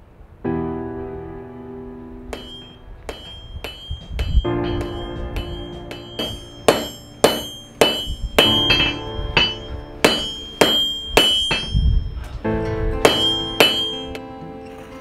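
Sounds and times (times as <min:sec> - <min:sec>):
hammer ringing on anvil: 0:02.4 - 0:12.3, 0:13.0 - 0:14.2.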